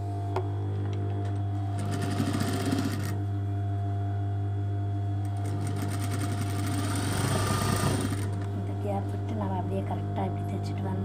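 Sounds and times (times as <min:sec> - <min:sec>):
steady low hum: 0:00.0 - 0:11.0
sewing machine stitching: 0:01.8 - 0:03.2, 0:05.4 - 0:08.5.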